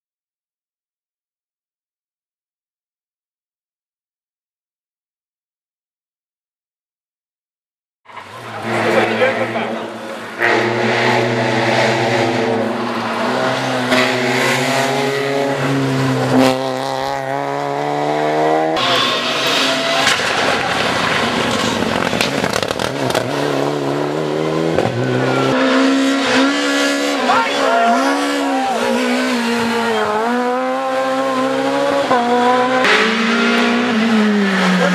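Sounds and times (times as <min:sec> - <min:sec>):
rally car engine revving: 0:08.1 - 0:34.9.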